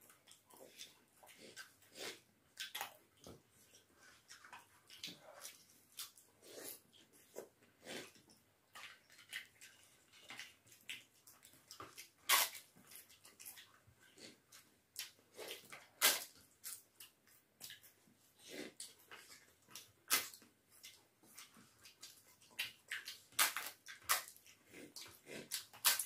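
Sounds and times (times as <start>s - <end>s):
wet chewing and smacking: 0.0s - 26.0s.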